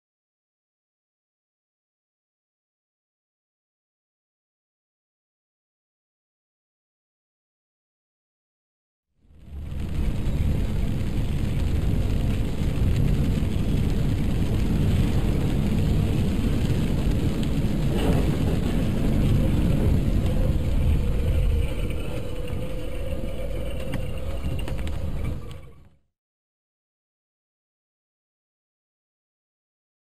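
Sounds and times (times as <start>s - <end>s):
heavy rain: 9.3s - 25.8s
car road and engine noise: 9.4s - 25.8s.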